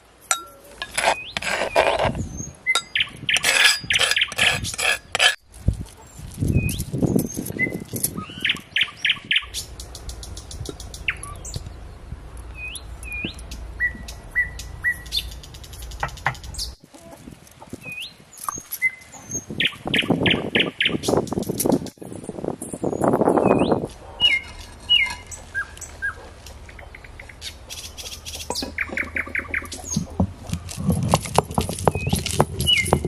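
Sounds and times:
small birds chirping: 0.4s - 4.9s, 5.9s - 30.6s, 31.7s - 33.0s
scraping and rubbing on stone grinder: 0.7s - 6.2s, 23.8s - 26.7s, 27.4s - 33.0s.

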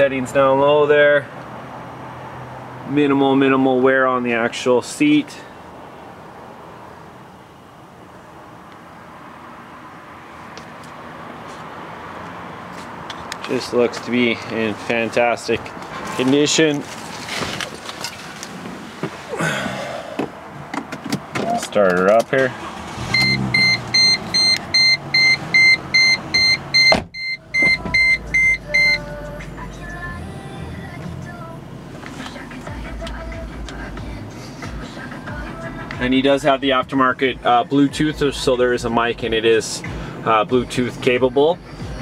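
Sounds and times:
seatbelt warning chime beeping: 23.1s - 29.2s
low outdoor rumble: 27.4s - 42.0s.

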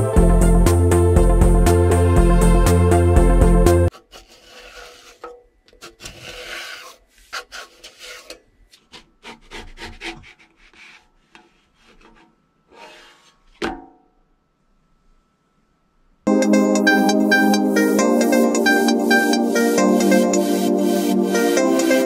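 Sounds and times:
spatula scraping griddle: 3.9s - 13.5s.

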